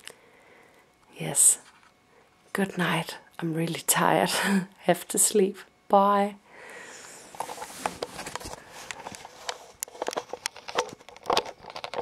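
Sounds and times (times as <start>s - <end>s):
camera handling clicks and rustles: 7.4s - 12.0s.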